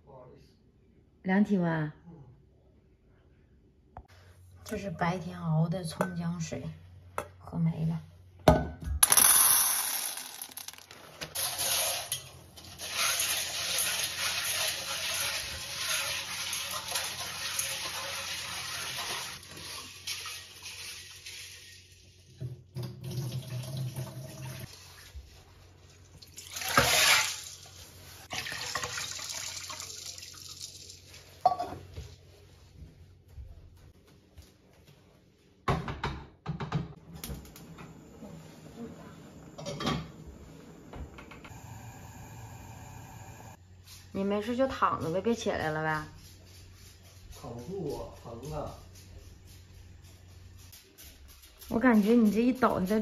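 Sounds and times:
dried beans rattling into a bowl: 9.0s - 12.2s
tap water running into a bowl: 28.3s - 31.0s.

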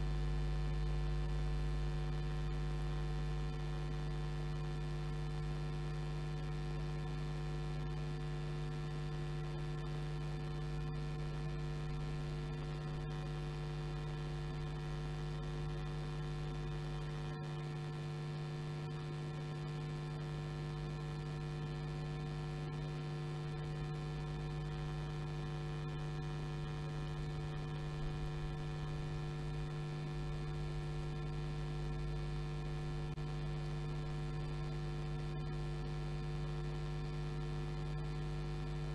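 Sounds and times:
electrical mains hum: 7.8s - 38.9s.

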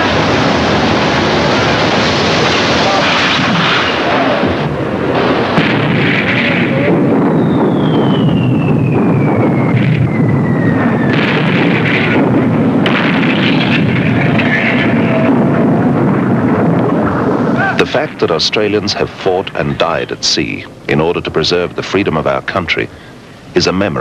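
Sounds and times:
naval gunfire: 0.0s - 21.4s
shell explosions: 0.0s - 24.0s
falling whistle: 7.3s - 11.1s.

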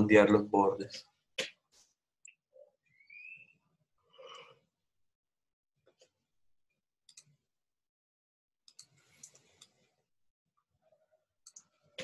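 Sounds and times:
computer mouse clicks: 7.1s - 7.4s, 8.7s - 9.8s, 11.4s - 11.7s.

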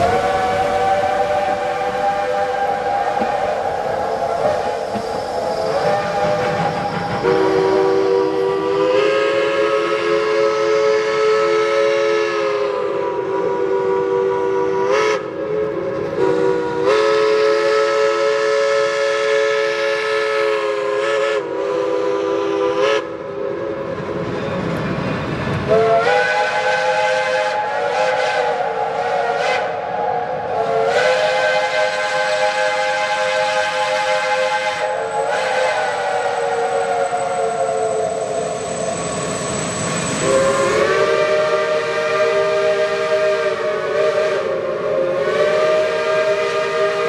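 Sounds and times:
steam locomotive chime whistle: 0.0s - 24.6s, 25.7s - 47.0s.

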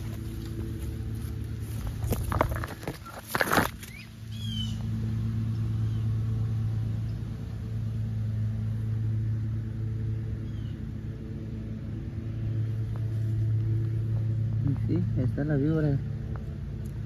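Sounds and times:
engine hum: 0.0s - 17.0s
high bird chirps: 3.9s - 4.8s.

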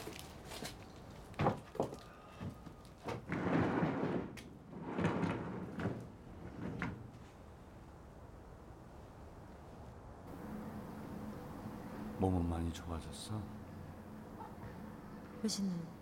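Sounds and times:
sliding door rumbling on track: 3.0s - 7.4s.

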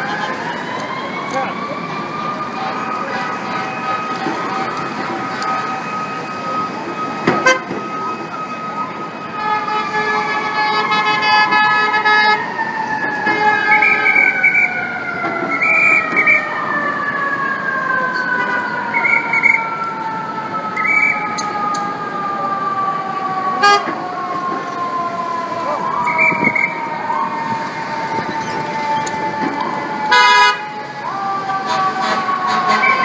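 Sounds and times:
city traffic: 0.0s - 33.0s
fire engine sirens: 0.0s - 33.0s
fire engine horn blasts: 2.4s - 14.7s, 23.5s - 24.1s, 25.9s - 33.0s.

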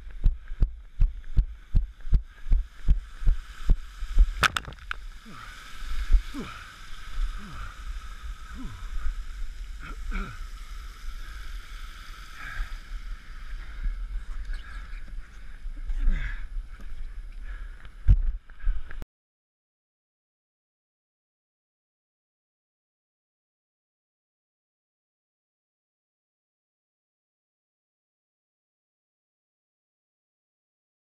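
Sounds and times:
running footsteps on dirt: 0.0s - 4.9s
strained breathing: 0.0s - 19.0s.

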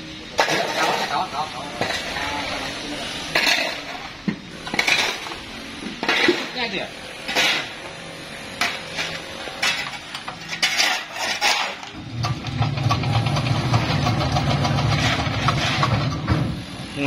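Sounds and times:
metal tools clinking and scraping: 0.4s - 2.7s, 3.3s - 5.4s, 7.3s - 7.8s, 8.6s - 12.0s
diesel engine chugging: 12.0s - 16.7s.

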